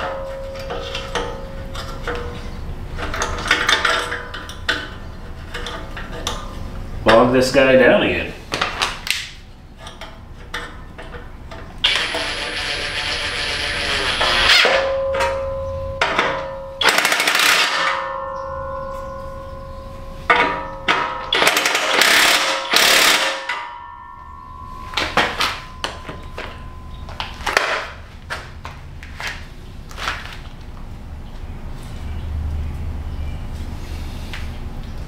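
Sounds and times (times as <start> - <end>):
steady metallic ring: 0.0 - 5.9, 11.9 - 28.5
impact wrench hammering: 11.9 - 19.6, 20.3 - 28.0.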